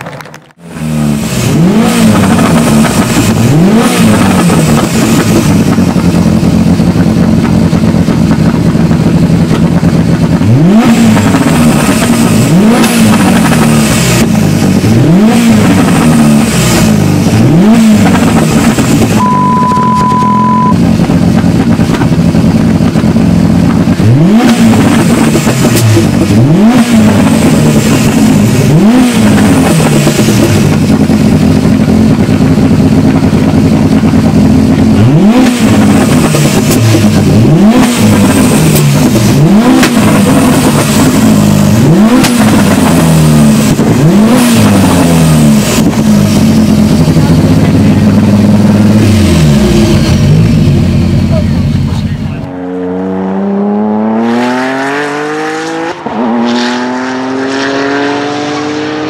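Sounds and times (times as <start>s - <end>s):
exhaust pops and crackles: 0.0s - 0.6s, 2.1s - 15.0s, 15.6s - 26.4s, 27.0s - 49.3s
car engine idling: 0.0s - 53.1s
car engine revving: 0.0s - 59.0s.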